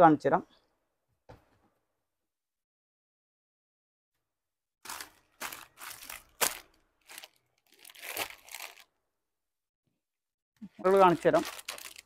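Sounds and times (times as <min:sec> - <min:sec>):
fabric rustling and crinkling: 0:04.8 - 0:08.9, 0:10.9 - 0:12.0.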